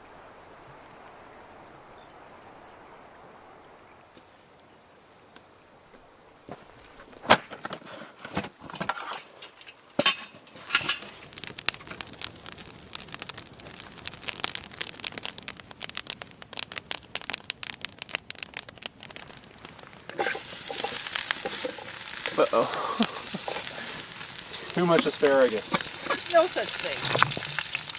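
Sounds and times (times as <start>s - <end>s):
campfire crackling and popping: 3.7s - 27.9s
food sizzling in frying pan: 9.1s - 27.9s.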